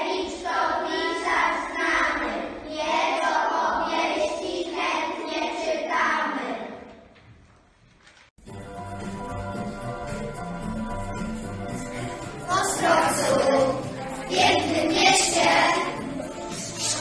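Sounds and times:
children singing: 0.0 - 6.7, 11.8 - 17.0.

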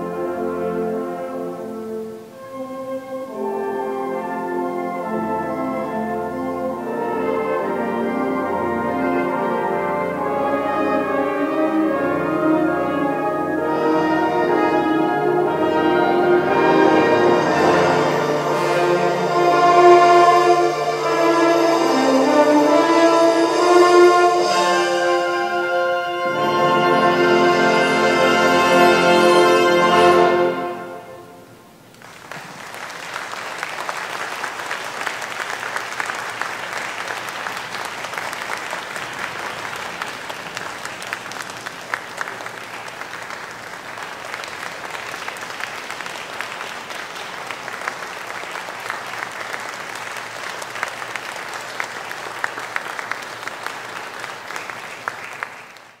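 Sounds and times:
audience applauding: 31.8 - 56.0.

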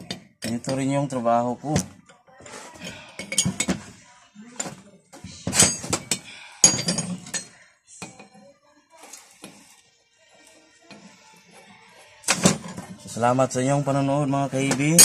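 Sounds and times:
metal wrenches clanking: 5.6 - 7.6.

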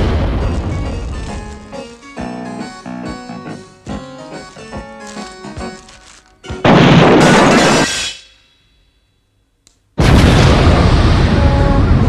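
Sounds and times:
loud explosion: 0.0 - 1.1, 6.6 - 8.1, 10.0 - 12.0.

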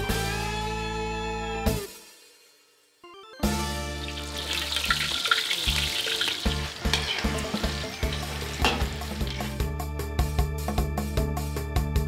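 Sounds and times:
background music with low tones: 0.0 - 12.0
fish sizzling in hot oil: 3.9 - 9.7.

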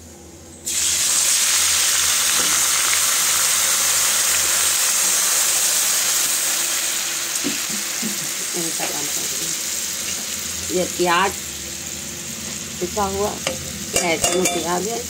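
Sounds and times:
water sizzling in hot oil: 0.7 - 15.0.

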